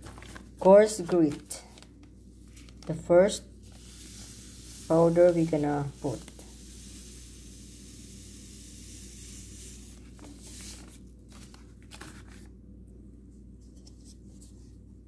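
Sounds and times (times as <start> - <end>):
plastic bag crinkling: 0.0 - 3.0
grit pouring into water: 3.6 - 10.2.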